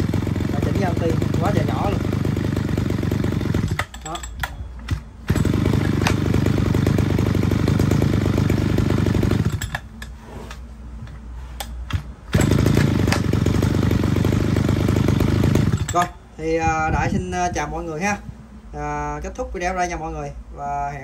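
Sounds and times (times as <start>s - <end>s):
brush cutter engine revving and idling: 0.0s - 4.2s, 4.9s - 9.8s, 12.3s - 16.1s.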